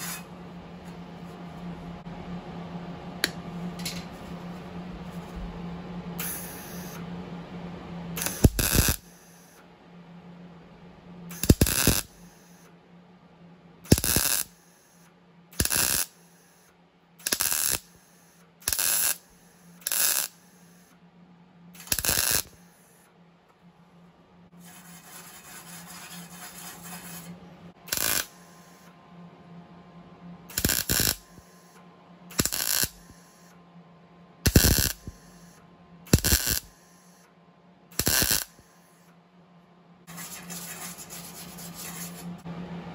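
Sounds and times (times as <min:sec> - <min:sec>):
welding arc bursts: 0:00.0 - 0:00.2, 0:06.2 - 0:07.0, 0:08.2 - 0:09.5, 0:11.3 - 0:12.6, 0:13.9 - 0:14.9, 0:15.6 - 0:16.6, 0:17.2 - 0:20.9, 0:21.8 - 0:23.0, 0:27.9 - 0:28.9, 0:30.5 - 0:33.5, 0:34.4 - 0:37.2, 0:38.0 - 0:39.0.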